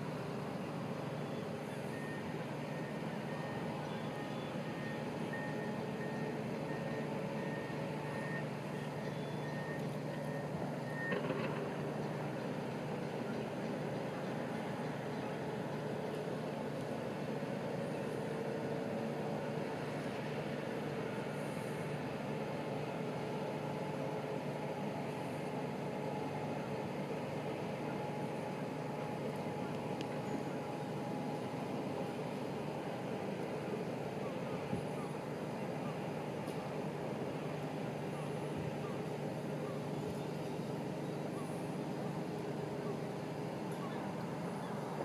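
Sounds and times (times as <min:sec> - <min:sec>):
engine hum: 0:00.0 - 0:45.0
faint steady whine: 0:00.0 - 0:45.0.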